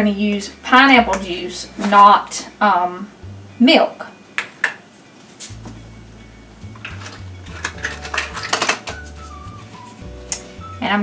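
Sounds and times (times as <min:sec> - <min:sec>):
kitchen utensils clinking: 0:06.8 - 0:09.3.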